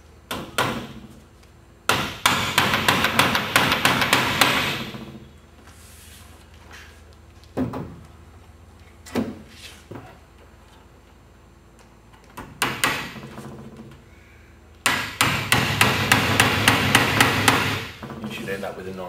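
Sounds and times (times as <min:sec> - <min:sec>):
hammer knocking on wood: 0:14.8 - 0:17.9.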